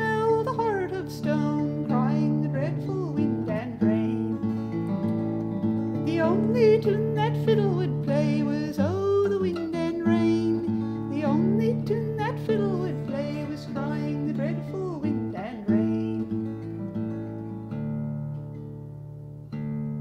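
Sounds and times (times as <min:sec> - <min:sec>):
acoustic guitar playing folk ballad: 0:00.0 - 0:20.0.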